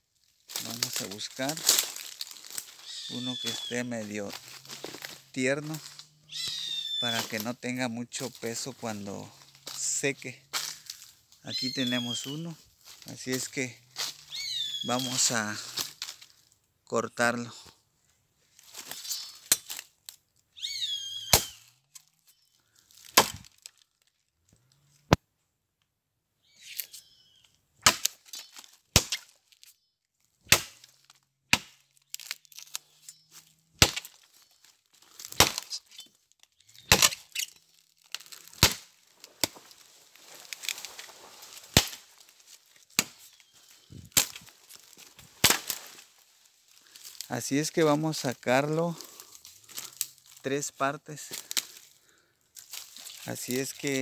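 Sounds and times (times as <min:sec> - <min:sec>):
machete chopping tree trunk: 0:19.4 - 0:19.8, 0:21.3 - 0:21.6, 0:23.0 - 0:23.6, 0:27.8 - 0:29.4, 0:30.4 - 0:30.9, 0:31.5 - 0:32.7, 0:33.8 - 0:34.2, 0:35.2 - 0:35.7, 0:36.8 - 0:37.5, 0:38.2 - 0:39.6, 0:41.6 - 0:42.1, 0:42.9 - 0:43.3, 0:44.1 - 0:44.5, 0:45.4 - 0:45.9.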